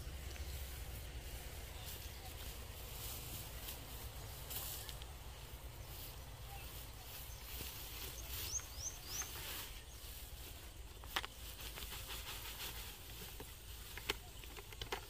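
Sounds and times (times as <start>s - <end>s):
steady low rumble: 0.0s - 8.3s
bird chirping: 0.0s - 11.2s
rice stalks rustling: 0.0s - 15.0s.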